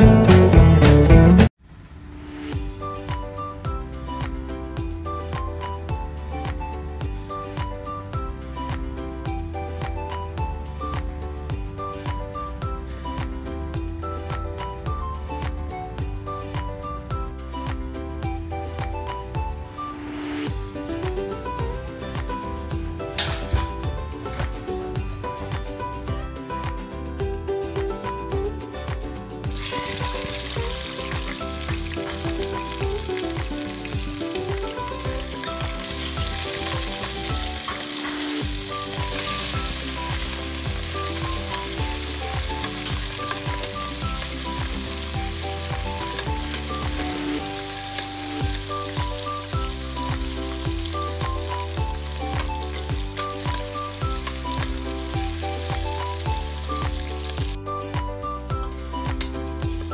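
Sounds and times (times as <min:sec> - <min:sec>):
vegetables sizzling in oil: 0:29.5 - 0:57.6.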